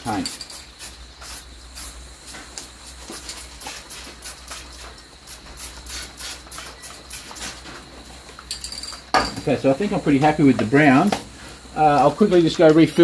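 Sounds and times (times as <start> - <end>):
spray paint can bursts: 0.0 - 7.7.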